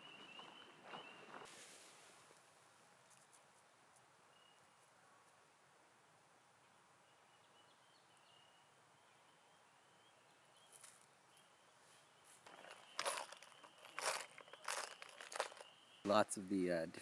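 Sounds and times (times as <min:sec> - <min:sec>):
soft rustles: 0:11.8 - 0:15.7.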